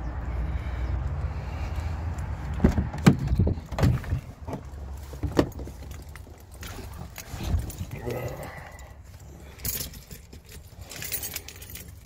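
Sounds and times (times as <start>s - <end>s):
vehicle rumble: 0.0s - 12.0s
clunks and rattles: 2.4s - 8.0s.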